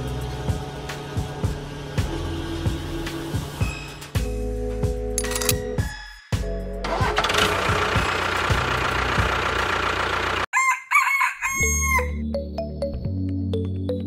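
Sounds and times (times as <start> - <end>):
rooster crowing: 10.5 - 12.2.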